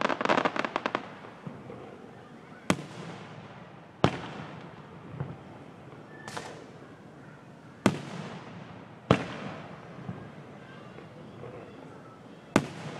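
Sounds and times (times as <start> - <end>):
fireworks bursting with loud bangs: 0.0 - 12.9
faint firework pops: 2.7 - 6.8, 7.8 - 10.3.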